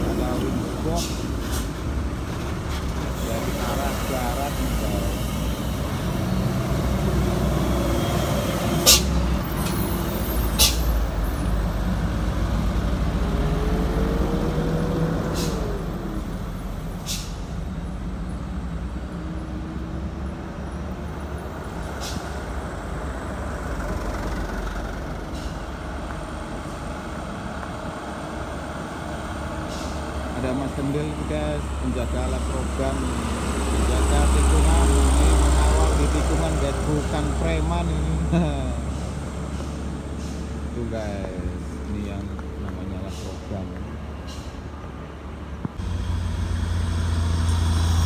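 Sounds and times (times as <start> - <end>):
diesel truck engines rumbling: 0.0 - 48.0
air brake hisses: 10.5 - 10.9, 15.3 - 15.8, 17.0 - 17.5, 29.7 - 30.1.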